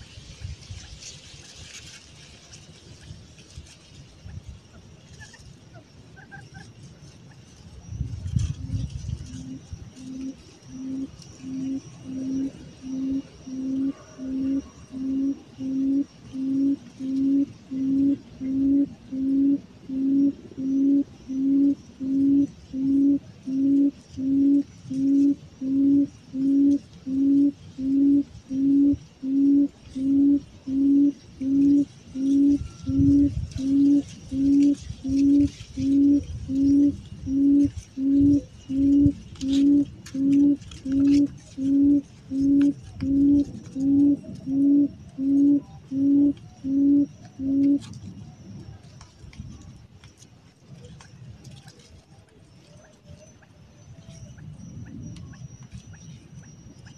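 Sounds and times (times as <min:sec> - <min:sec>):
bird low hooting call: 0:08.1 - 0:48.9.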